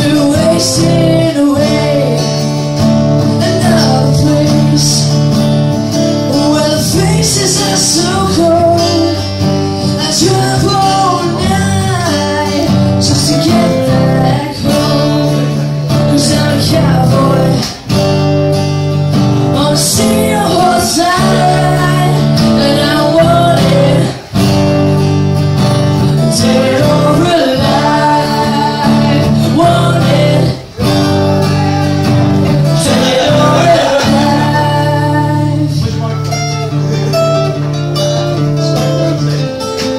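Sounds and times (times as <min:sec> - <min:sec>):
person singing into microphones: 0:00.0 - 0:18.0, 0:19.1 - 0:24.7, 0:25.9 - 0:39.9
acoustic guitar strumming chords: 0:00.0 - 0:39.9.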